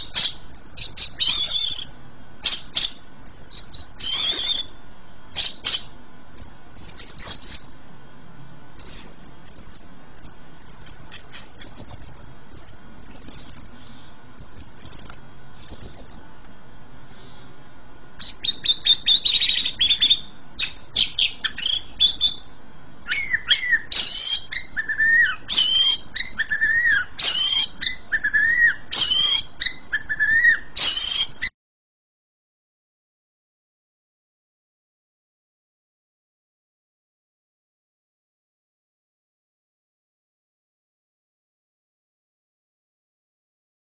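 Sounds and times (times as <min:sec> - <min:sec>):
bird singing: 0:00.0 - 0:07.8, 0:08.8 - 0:16.4, 0:18.2 - 0:31.5.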